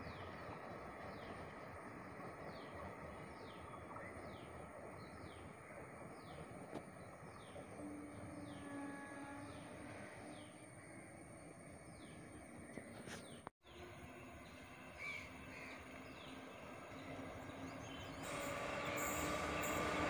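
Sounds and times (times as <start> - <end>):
distant train rumble: 0.0 - 20.0
bird chirping: 11.8 - 20.0.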